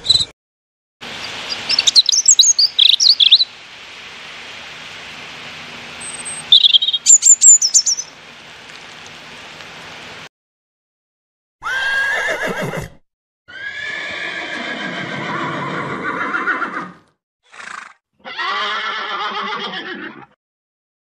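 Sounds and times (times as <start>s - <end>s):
horses whinnying: 11.6s - 20.4s.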